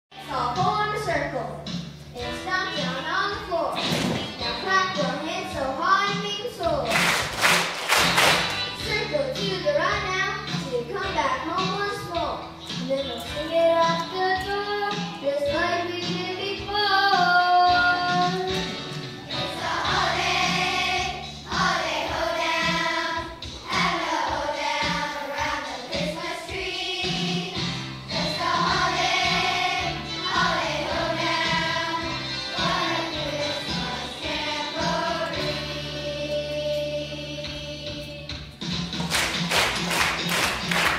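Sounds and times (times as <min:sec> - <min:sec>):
instrumental accompaniment with beat: 0:00.3 - 0:40.9
children singing: 0:19.3 - 0:38.3.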